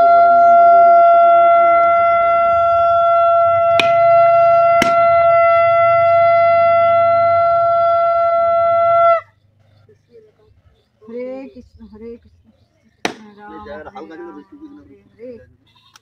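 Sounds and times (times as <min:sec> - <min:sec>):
conch shell blast: 0:00.4 - 0:07.6.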